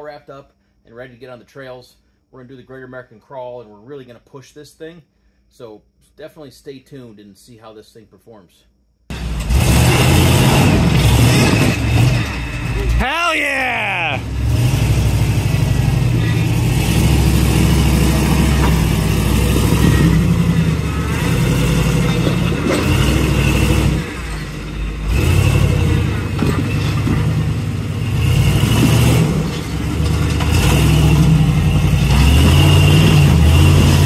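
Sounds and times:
engine revving under load: 9.1 - 12.9, 14.1 - 34.0.

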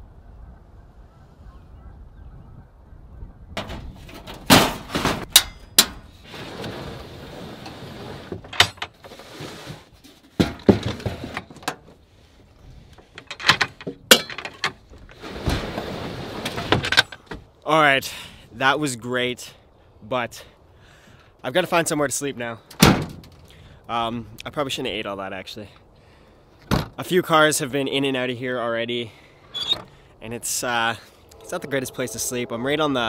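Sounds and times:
wind rumble on microphone: 0.0 - 4.5
drawer scraping: 6.2 - 11.8, 14.3 - 17.1.

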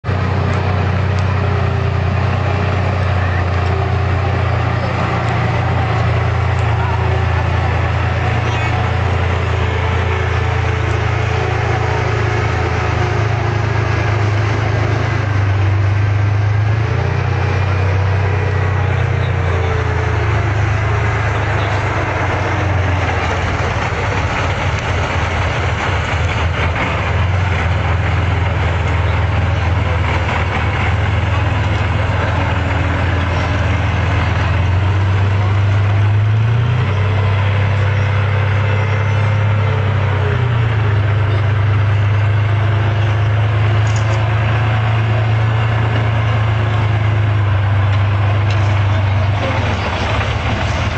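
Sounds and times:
diesel engine droning under load: 0.0 - 50.9.

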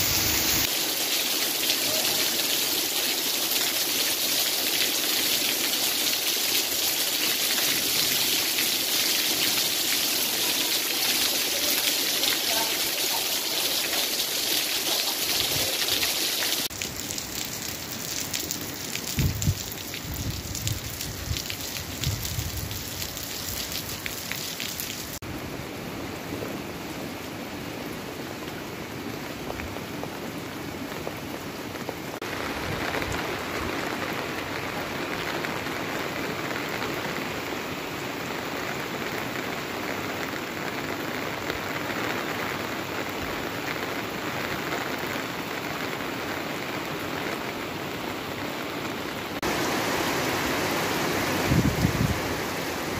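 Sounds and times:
water running off roof: 0.0 - 25.2
heavy rain pattering: 0.0 - 26.6, 27.9 - 52.9.

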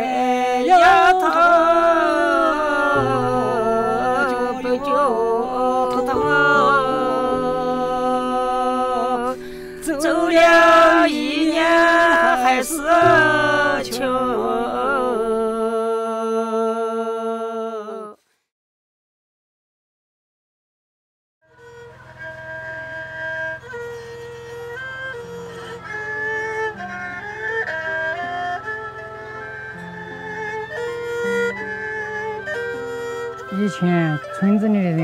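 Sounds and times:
low sustained tone: 0.0 - 16.1
person singing unaccompanied: 0.0 - 18.2.

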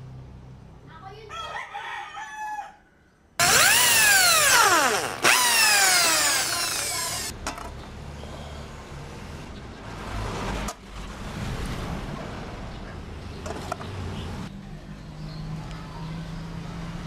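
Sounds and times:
rooster crowing: 1.3 - 3.1
electric drill boring pipe: 3.4 - 7.3.

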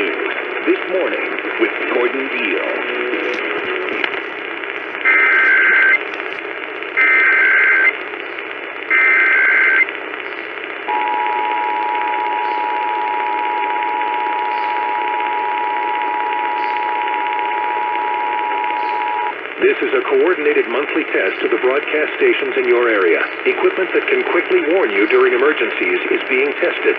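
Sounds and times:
radio static hiss: 0.0 - 26.9
two-tone attention signal: 10.9 - 19.3.

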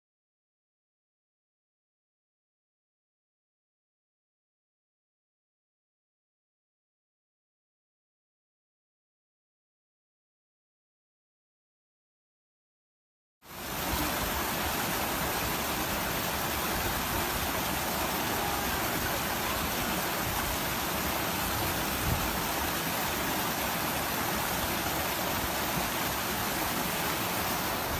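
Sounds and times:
wind on microphone: 21.4 - 22.4.

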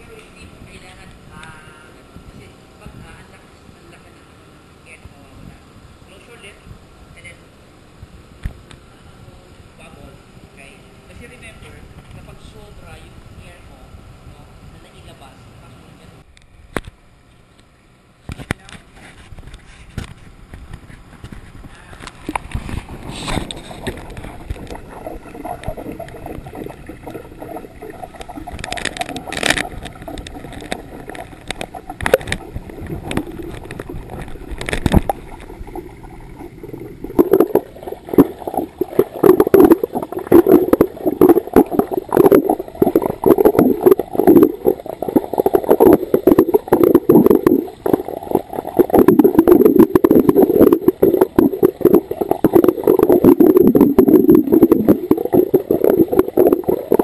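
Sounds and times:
underwater regulator bubbles gurgling: 22.3 - 57.0.

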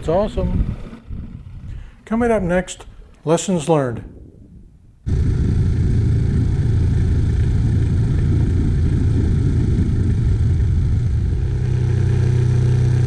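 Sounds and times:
outboard motor running: 0.0 - 1.9, 5.0 - 13.0.

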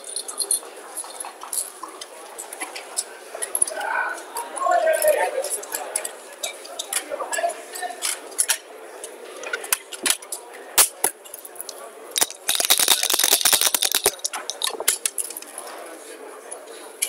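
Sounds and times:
dice rattling in cup: 12.2 - 15.1
checkers clacking on board: 12.2 - 15.3.

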